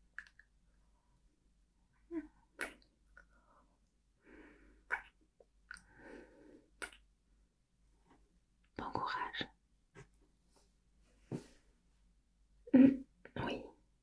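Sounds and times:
soft breaths: 0:03.2 - 0:04.9, 0:05.7 - 0:06.8.

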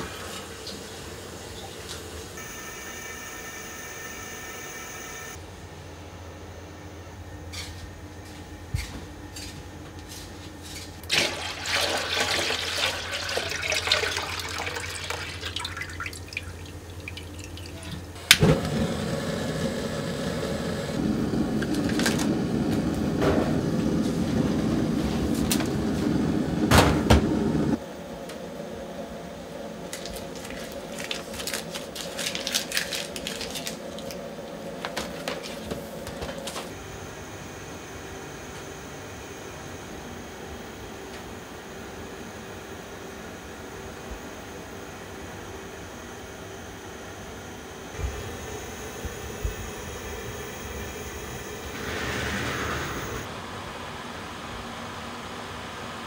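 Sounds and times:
liquid pouring into pot: 0:11.1 - 0:17.8
gas burner flame rushing: 0:18.2 - 0:27.8, 0:47.9 - 0:53.3.

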